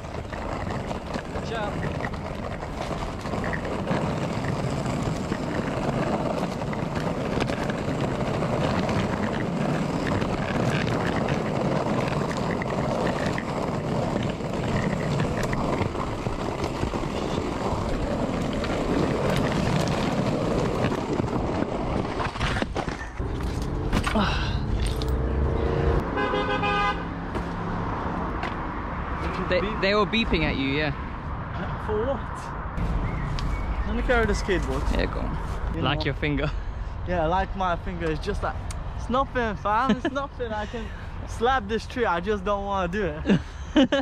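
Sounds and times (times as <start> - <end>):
skateboard wheels rolling: 0.0 - 25.5, 32.8 - 35.8.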